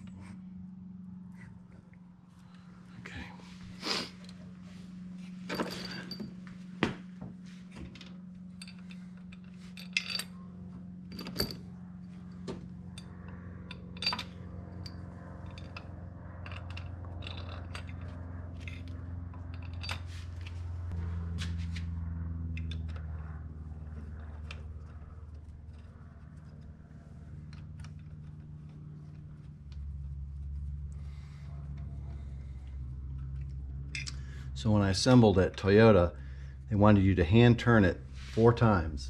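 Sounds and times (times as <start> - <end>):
steady low hum: 0.0 - 39.0
metal bolts clinking and scraping: 5.4 - 6.4, 8.0 - 10.4, 11.0 - 20.6, 33.1 - 34.2.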